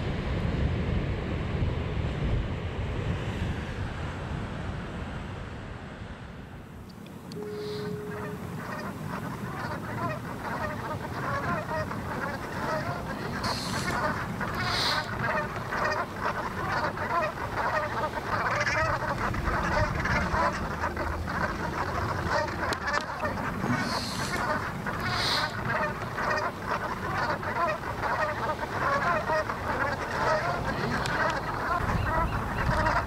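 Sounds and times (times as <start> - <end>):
flock of geese calling: 7.3 - 33.0.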